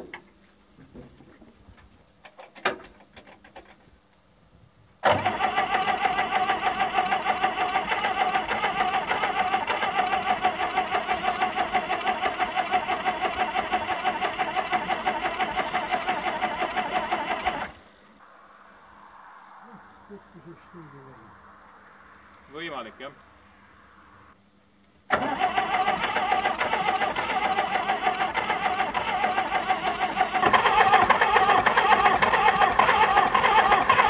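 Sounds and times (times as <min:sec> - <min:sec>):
electric starter cranking diesel engine: 0:05.0 - 0:17.9, 0:25.1 - 0:34.0.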